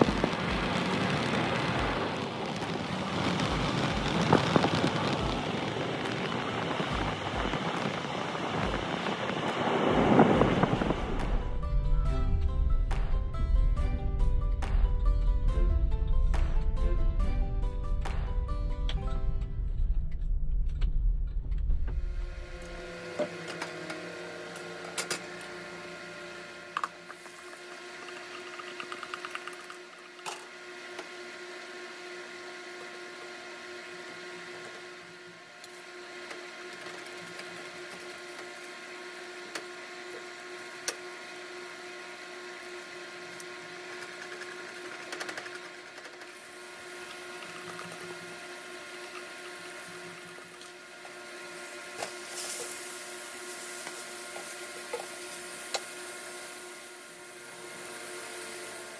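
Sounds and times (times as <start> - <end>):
motor hum: 0.0 - 58.9
food frying in a pan: 27.0 - 58.9.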